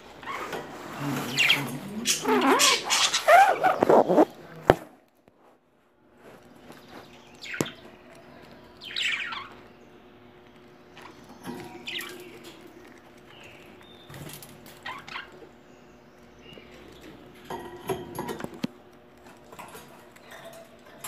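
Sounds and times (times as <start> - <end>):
bird chirp: 1.0 - 4.3, 6.6 - 18.1
budgerigars chattering: 1.2 - 4.3, 8.8 - 9.6.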